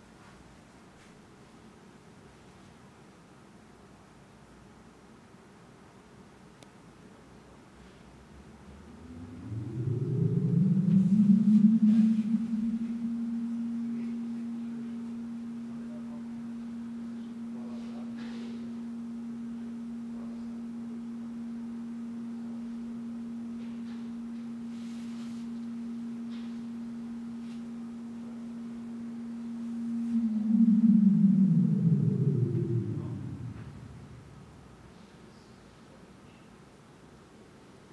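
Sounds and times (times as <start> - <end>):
steady low electronic tone: 8.2 - 35.1.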